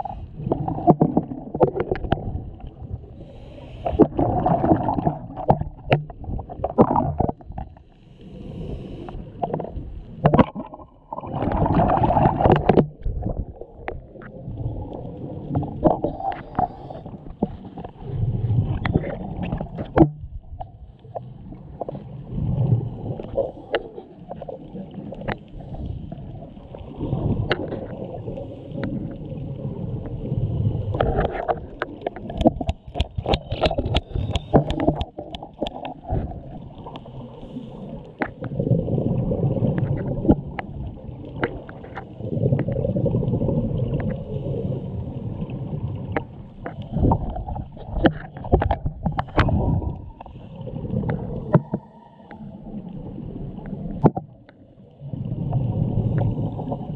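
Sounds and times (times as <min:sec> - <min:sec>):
exhaled bubbles gurgling: 0:00.0 - 0:56.9
underwater regulator breathing: 0:03.0 - 0:05.0, 0:07.9 - 0:09.8, 0:16.0 - 0:17.6, 0:32.3 - 0:38.5, 0:49.2 - 0:52.5.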